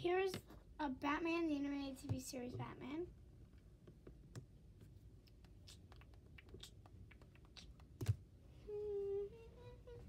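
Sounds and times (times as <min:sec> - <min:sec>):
person humming: 0:08.6 - 0:10.0.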